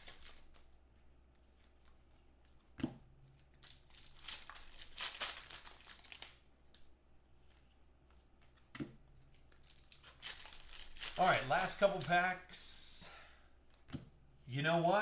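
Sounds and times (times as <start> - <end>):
foil wrappers crinkling and tearing: 0.0 - 0.6, 3.6 - 6.4, 9.6 - 12.3.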